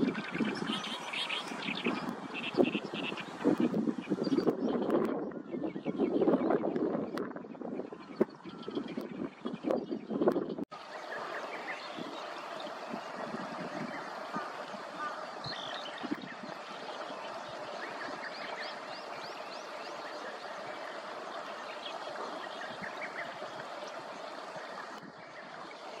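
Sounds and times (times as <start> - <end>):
stream water rushing: 0.0 - 4.2, 10.7 - 26.0.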